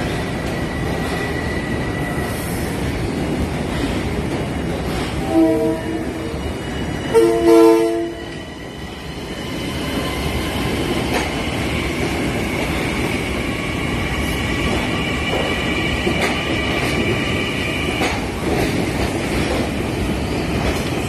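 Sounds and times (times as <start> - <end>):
high train squeal: 0.0 - 3.1, 3.7 - 21.0
train rumbling: 0.0 - 21.0.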